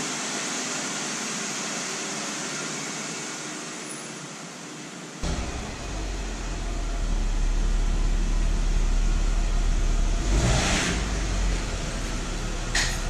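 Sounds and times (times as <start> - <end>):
car engine rumbling: 5.2 - 13.0.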